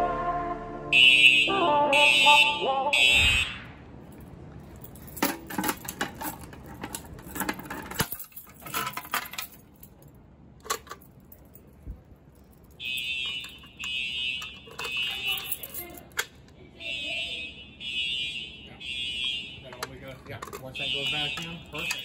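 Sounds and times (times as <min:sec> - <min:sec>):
fire alarm horn pulsing: 0:00.9 - 0:03.5, 0:12.8 - 0:15.6, 0:16.9 - 0:19.8, 0:20.7 - 0:22.0
keys jangling: 0:04.1 - 0:16.4, 0:19.7 - 0:22.0.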